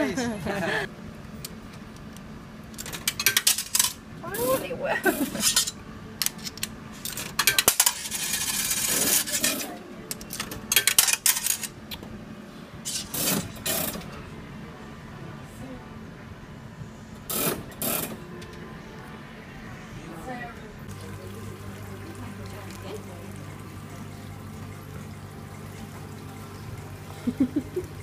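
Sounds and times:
coins clinking in metal tray: 10.3s - 11.7s.

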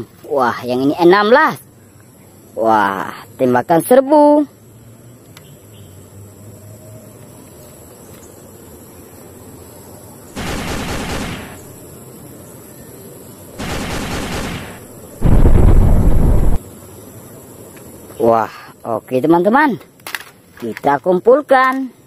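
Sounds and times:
machine-gun fire bursts: 10.4s - 11.8s, 13.6s - 16.6s
deep explosion: 13.6s - 16.6s.

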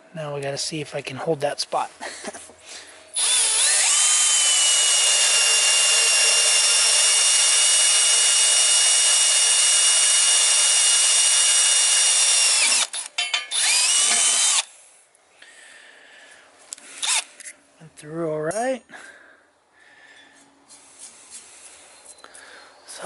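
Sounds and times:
power drill whining into steel: 3.1s - 14.7s, 17.0s - 17.5s.

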